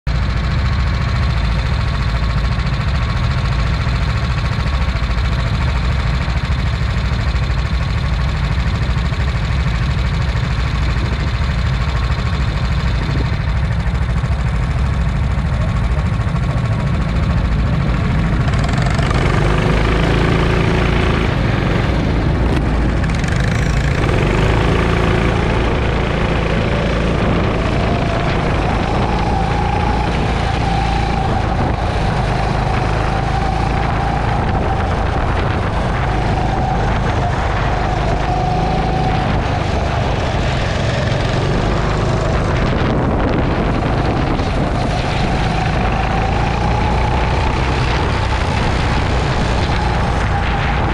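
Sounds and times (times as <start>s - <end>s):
go-kart engine: 0.1s - 50.9s.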